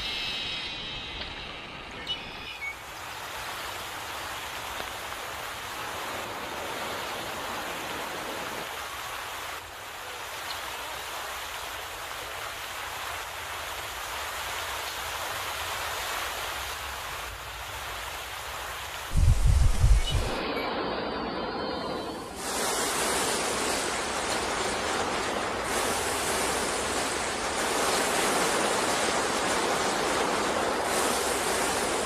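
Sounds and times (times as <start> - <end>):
water flowing over rocks: 2.7 - 19.2.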